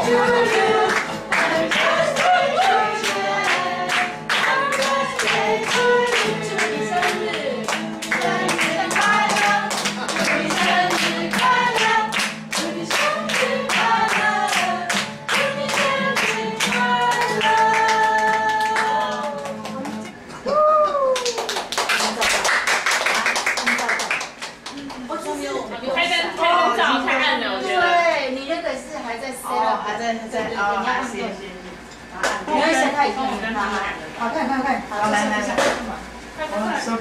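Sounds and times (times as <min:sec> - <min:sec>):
group singing: 0:00.0 - 0:20.2
people clapping: 0:00.0 - 0:20.2, 0:20.8 - 0:25.2.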